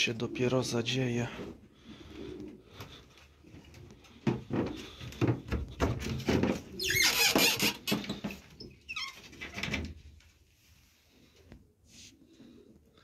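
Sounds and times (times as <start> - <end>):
wooden gate knocking and rattling: 4.3 - 8.4
gate squeaking: 6.8 - 8.1.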